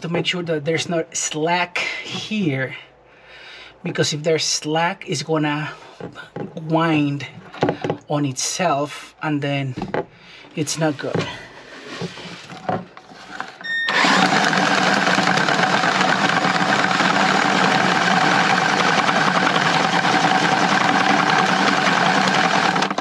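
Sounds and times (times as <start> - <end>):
cordless drill motor whirring: 13.2 - 23.0.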